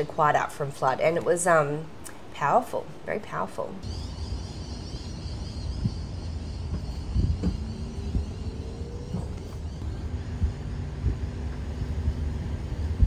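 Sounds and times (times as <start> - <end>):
car road and engine rumble: 3.8 - 13.0
faint rising whine: 3.8 - 13.0.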